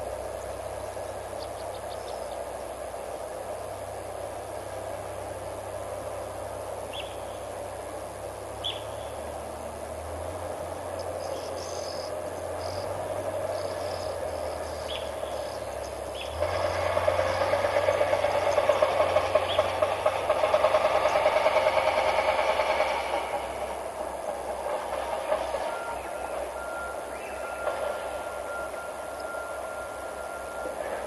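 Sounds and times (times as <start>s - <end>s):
insect chorus: 0.0s - 31.0s
high falling bird calls: 8.6s - 9.2s.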